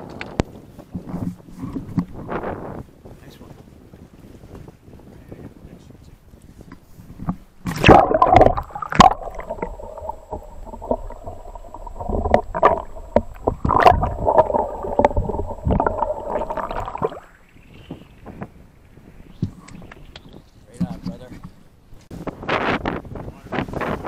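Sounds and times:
underwater knocks and sloshes: 0.0s - 2.6s, 6.6s - 22.3s
microphone splashing into water: 6.4s - 24.0s
muffled underwater bubbling: 7.1s - 21.3s.

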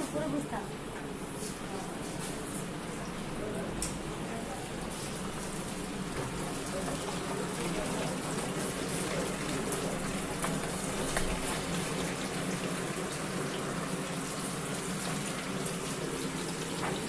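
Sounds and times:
hot oil sizzling: 4.5s - 17.0s.

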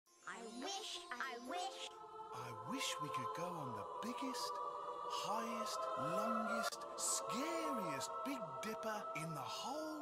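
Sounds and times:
background music: 0.1s - 10.0s
high shimmering sparkle: 0.8s - 10.0s.

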